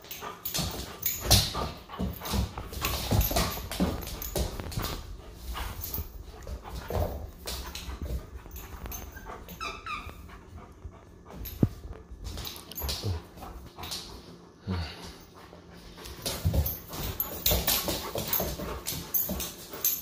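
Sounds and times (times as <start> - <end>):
dog whining: 8.5 - 10.5.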